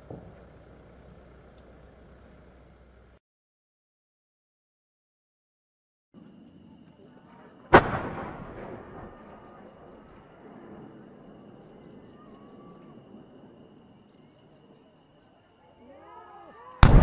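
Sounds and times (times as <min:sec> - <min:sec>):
firework launch bang: 0:07.7 - 0:09.5.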